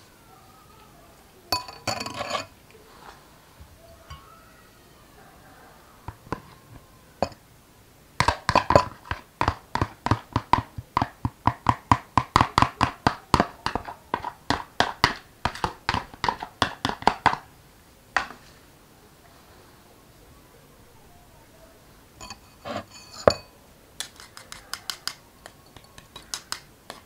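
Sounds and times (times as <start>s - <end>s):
spoon knocking on blender jug: 8.2s - 17.4s.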